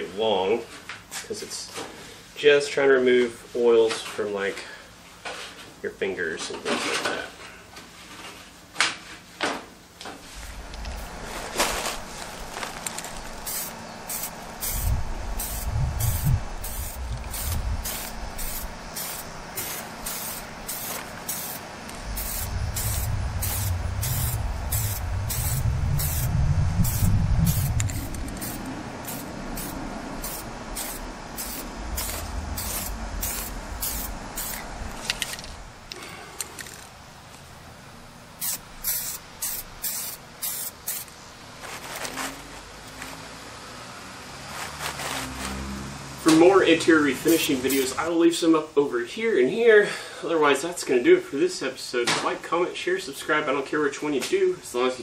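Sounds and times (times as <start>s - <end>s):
aerosol spray can hissing: 12.9s - 35.4s, 38.4s - 41.1s, 47.2s - 48.0s.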